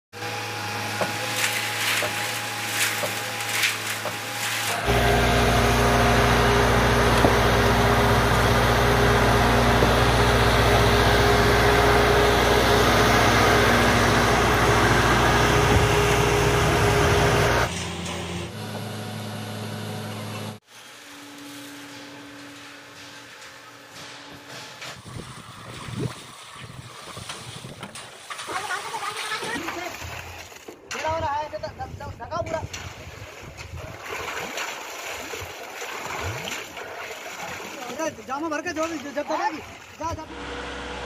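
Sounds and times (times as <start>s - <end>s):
concrete mixer and pump running: 0.2s - 31.2s, 32.4s - 41.0s.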